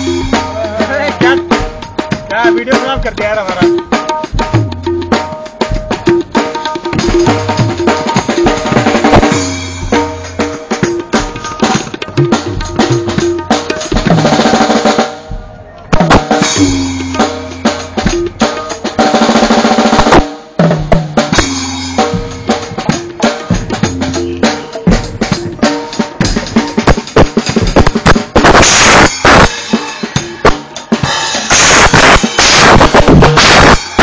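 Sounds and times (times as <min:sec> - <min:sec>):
drum kit beats and fills: 0:00.0 - 0:34.0
cymbal crashes: 0:27.8 - 0:34.0.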